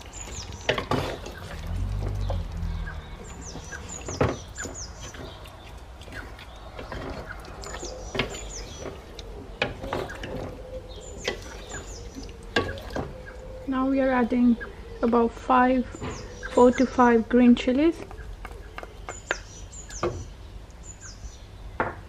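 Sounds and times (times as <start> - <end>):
spatula stirring and scraping pot: 0.0 - 10.6.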